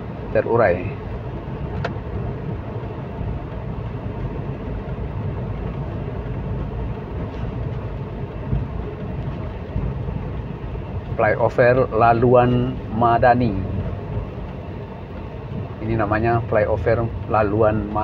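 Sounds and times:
car driving on road: 0:00.0 - 0:18.0.

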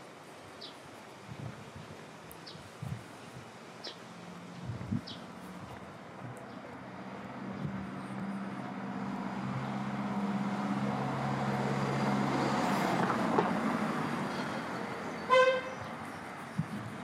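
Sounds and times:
vehicle engine passing: 0:06.2 - 0:15.2
car horn beep: 0:15.3 - 0:15.8.

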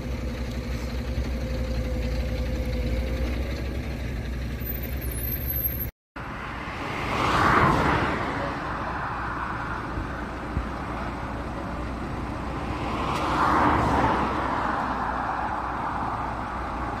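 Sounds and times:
highway traffic rumble: 0:00.0 - 0:17.0
vehicle passing by: 0:06.2 - 0:17.0.

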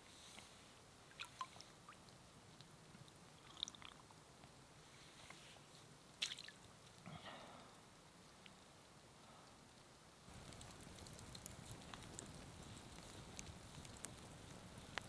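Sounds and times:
water drips into pond: 0:01.0 - 0:04.6, 0:06.1 - 0:08.7, 0:09.4 - 0:15.0
water splashing: 0:01.1 - 0:02.0, 0:06.2 - 0:06.7.

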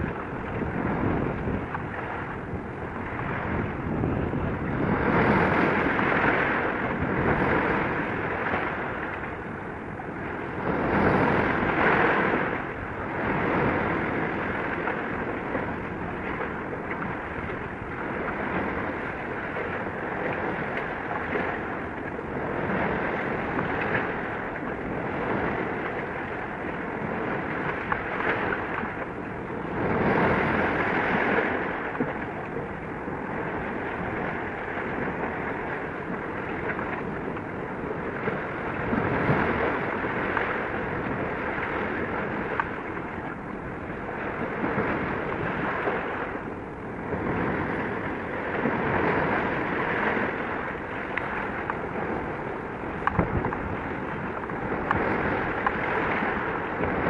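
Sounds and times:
wind and sea water rushing: 0:00.0 - 0:57.0
wind on microphone: 0:00.0 - 0:57.0.

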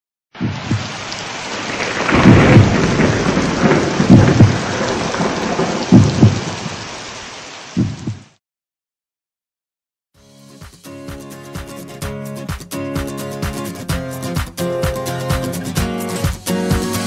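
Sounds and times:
rain hissing: 0:00.4 - 0:08.4
thunder rumbles: 0:00.4 - 0:08.4.

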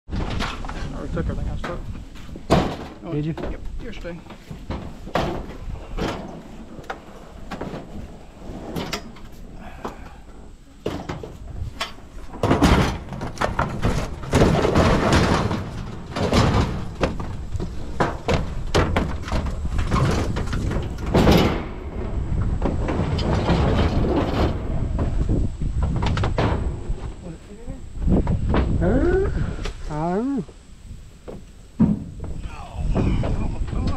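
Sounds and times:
metal knocks and clanks: 0:01.5 - 0:08.0, 0:10.8 - 0:25.2.

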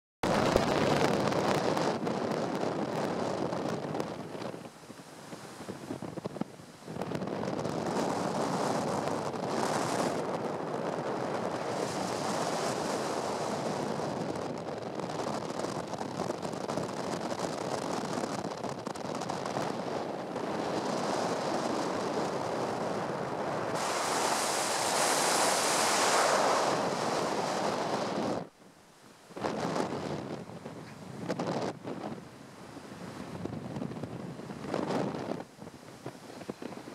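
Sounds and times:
sea rushing along hull: 0:00.2 - 0:36.9
wind buffeting microphone: 0:00.2 - 0:36.9.

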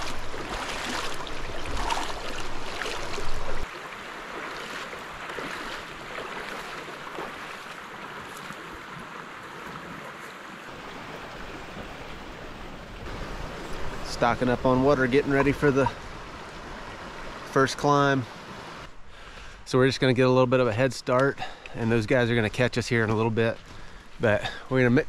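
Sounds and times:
person wading through creek water: 0:00.0 - 0:18.9
creek water flowing: 0:00.0 - 0:25.0.

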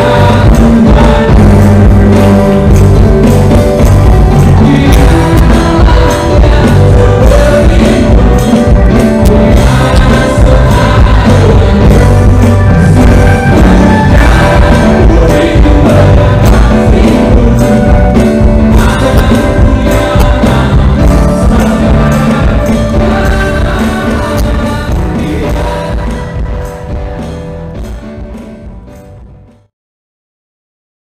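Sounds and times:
person singing: 0:00.0 - 0:27.0
drums: 0:00.0 - 0:29.7
electronic keyboard: 0:00.0 - 0:29.7.

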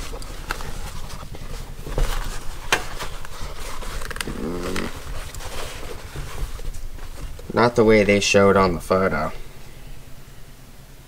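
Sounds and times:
leather gloves rustling: 0:00.0 - 0:08.5
man humming: 0:04.2 - 0:05.1.

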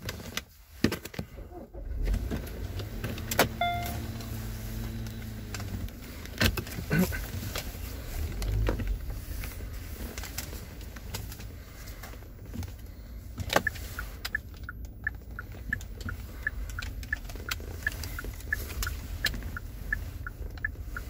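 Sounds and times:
car engine rumble inside cabin: 0:00.0 - 0:21.0
short beep: 0:03.6 - 0:04.2.

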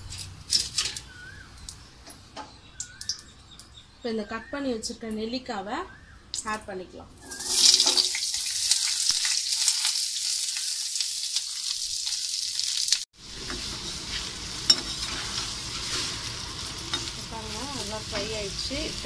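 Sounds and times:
food sizzling in hot oil: 0:07.2 - 0:19.0
steel spoon scraping a pan: 0:13.3 - 0:17.3.

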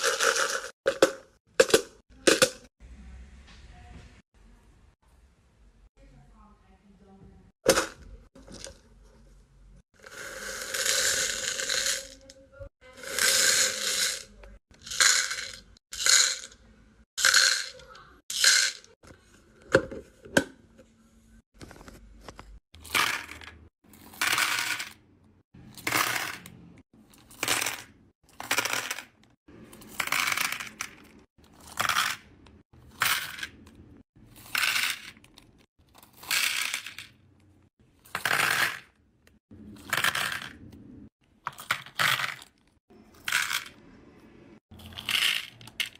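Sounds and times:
beads rattling into plastic compartments: 0:00.0 - 0:02.6, 0:10.0 - 0:12.4, 0:13.0 - 0:16.6, 0:17.2 - 0:19.0, 0:21.6 - 0:25.0, 0:25.6 - 0:26.5, 0:27.1 - 0:37.2, 0:38.0 - 0:39.0, 0:39.7 - 0:40.6, 0:41.4 - 0:43.8, 0:44.7 - 0:45.9.

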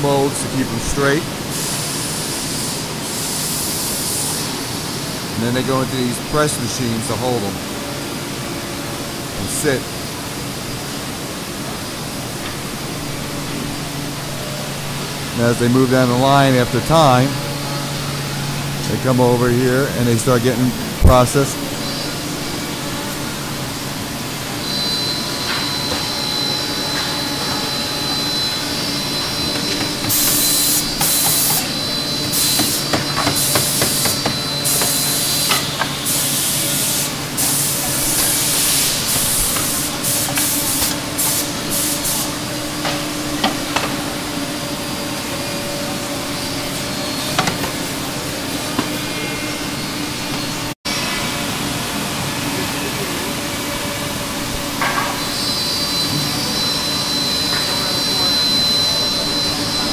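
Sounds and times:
machinery humming: 0:00.0 - 0:59.9
short hissing air blasts: 0:01.4 - 0:05.1, 0:32.3 - 0:42.5
high whine: 0:03.9 - 0:59.9.

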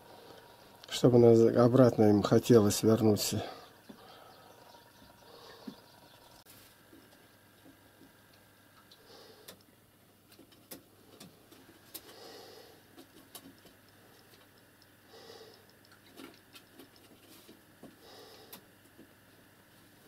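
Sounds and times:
pigeons pecking: 0:03.6 - 0:19.2.

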